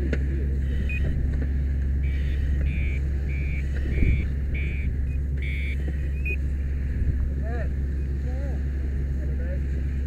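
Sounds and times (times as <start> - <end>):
low engine rumble: 0.0 - 10.0
electronic beeps: 0.8 - 1.1, 2.0 - 6.4.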